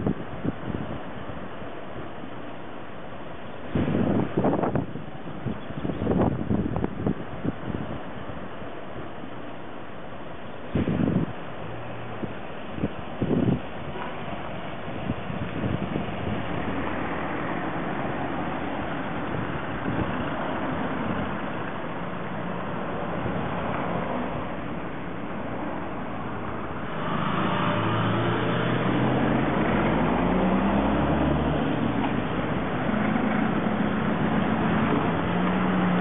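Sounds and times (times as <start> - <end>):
traffic hiss: 0.0 - 36.0
vehicle engine pulling away: 10.8 - 36.0.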